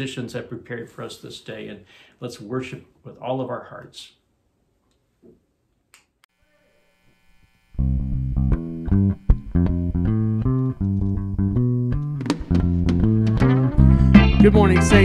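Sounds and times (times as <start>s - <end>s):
rock band playing: 9.0s - 15.0s.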